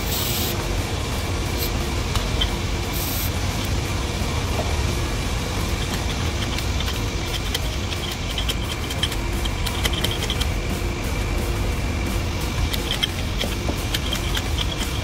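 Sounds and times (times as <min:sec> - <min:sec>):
machinery engine droning: 0:00.0 - 0:15.0
metal parts clicking: 0:05.6 - 0:10.6, 0:12.6 - 0:15.0.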